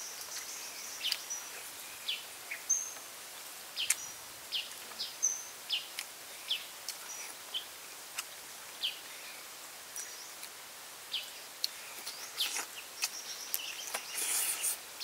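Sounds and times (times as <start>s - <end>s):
bird chirping: 0.0s - 3.1s, 3.8s - 7.7s, 11.1s - 14.8s
steady high hiss: 0.0s - 15.0s.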